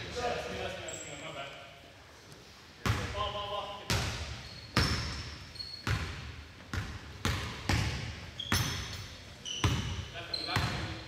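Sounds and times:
sneakers squeaking on floor: 0.7s - 1.5s, 3.9s - 11.0s
basketball bouncing on court: 3.9s - 9.0s, 9.6s - 11.0s.

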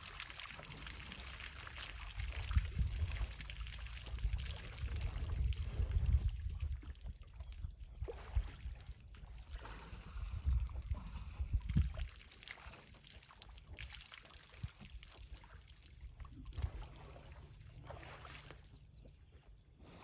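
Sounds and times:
water trickling and splashing: 0.0s - 19.2s
wind buffeting microphone: 2.1s - 9.1s, 9.9s - 12.1s.

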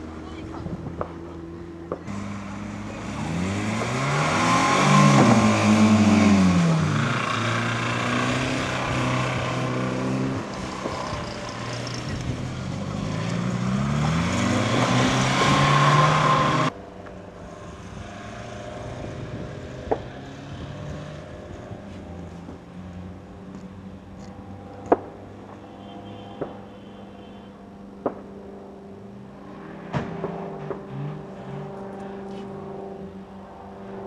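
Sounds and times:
car engines revving hard: 0.0s - 16.8s, 17.5s - 23.7s, 29.1s - 34.0s.

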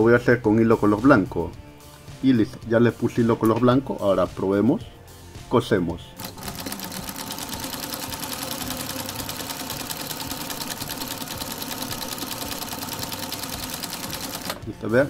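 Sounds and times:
sewing machine stitching clatter: 6.2s - 14.6s.

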